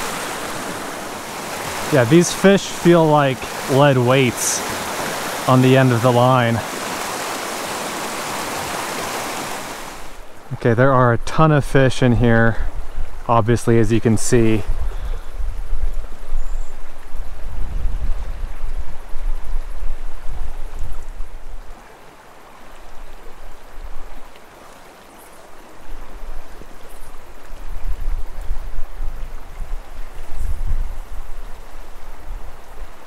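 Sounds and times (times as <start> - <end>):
creek flowing over gravel: 0.0 - 14.6, 18.6 - 30.4.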